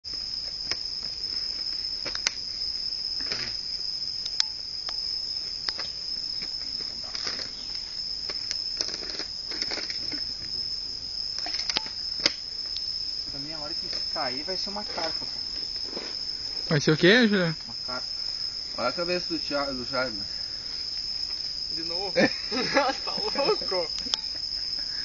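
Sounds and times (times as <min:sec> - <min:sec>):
insects calling: 0:00.0 - 0:25.0
sharp clicks: 0:04.2 - 0:05.0, 0:24.0 - 0:24.2.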